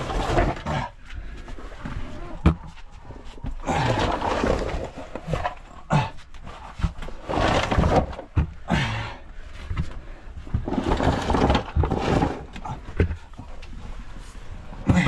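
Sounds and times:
body scraping over cave floor: 0:00.0 - 0:15.0
heavy breathing: 0:08.4 - 0:10.6.

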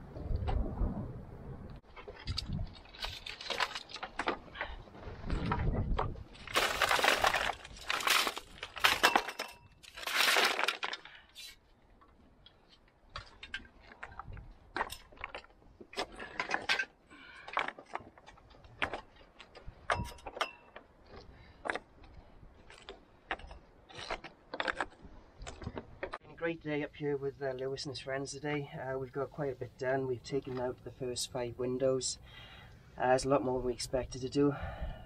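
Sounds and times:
stones rattling in a bucket: 0:05.3 - 0:11.5.

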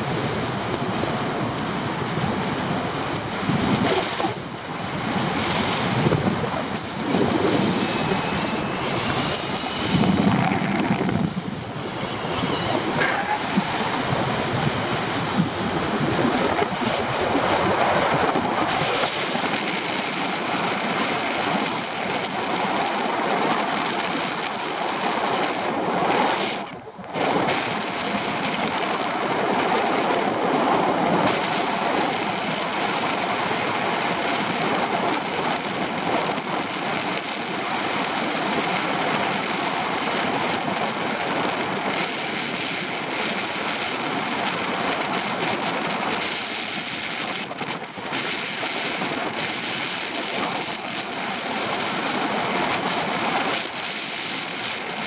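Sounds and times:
wind rushing over microphone: 0:00.0 - 0:55.0.

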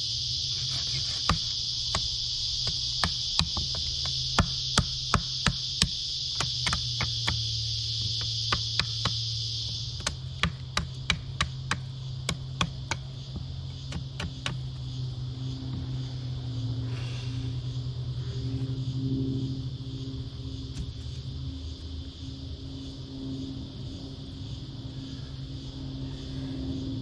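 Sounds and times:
high-pitched insect buzz: 0:00.0 - 0:27.0
knocks on wood: 0:02.7 - 0:09.2.

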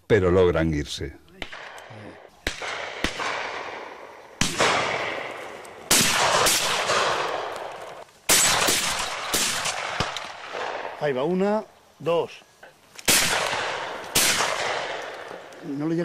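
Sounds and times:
faint gunshots cracking: 0:01.4 - 0:11.2, 0:13.0 - 0:15.6
shotgun shots echoing: 0:01.4 - 0:11.3, 0:13.0 - 0:15.5.

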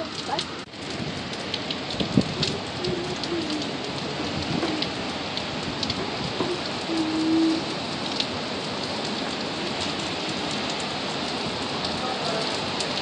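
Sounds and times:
heavy rain rushing: 0:00.0 - 0:13.0
wind: 0:00.0 - 0:13.0.

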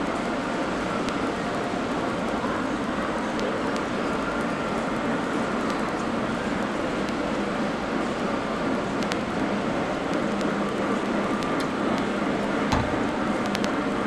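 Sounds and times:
faint clicks: 0:03.3 - 0:03.9, 0:09.0 - 0:09.3
exhibition hall din: 0:05.3 - 0:14.0
knock: 0:12.7 - 0:13.2.

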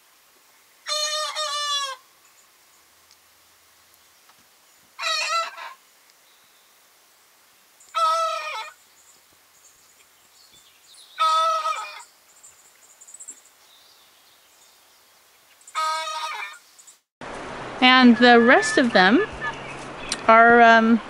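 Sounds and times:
young rooster crowing: 0:05.0 - 0:05.8, 0:08.0 - 0:08.7, 0:11.2 - 0:12.0.

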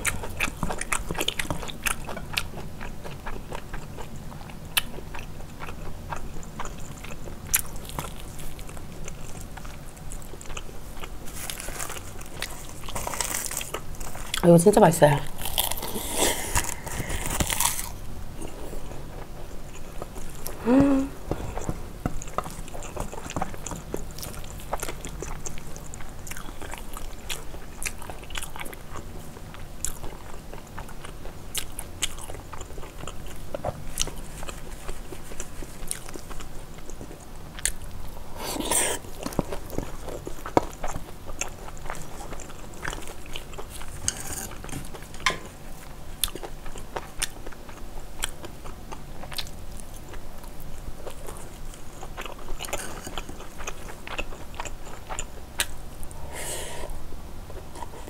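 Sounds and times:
chewing and wet smacking: 0:00.0 - 0:14.6, 0:21.3 - 0:56.2
rising vocal hum: 0:20.5 - 0:21.4.

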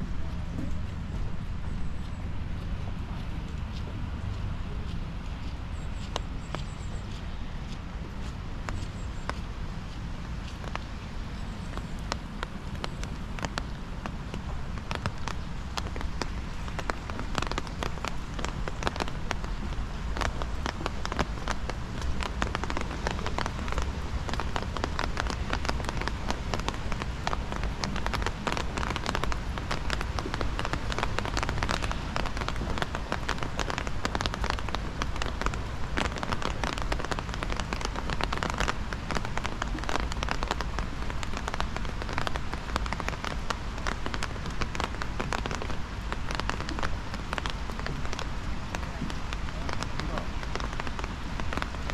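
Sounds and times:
hiss of falling rain: 0:00.0 - 0:51.9
raindrops pattering: 0:00.0 - 0:51.9.

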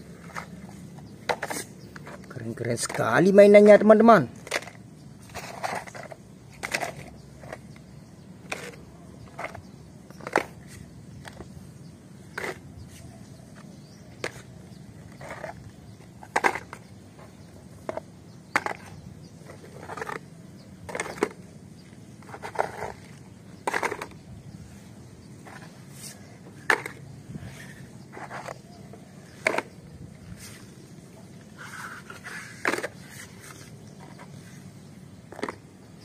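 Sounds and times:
plastic toys clicking and knocking: 0:01.2 - 0:11.6, 0:16.2 - 0:17.0, 0:22.2 - 0:24.2.

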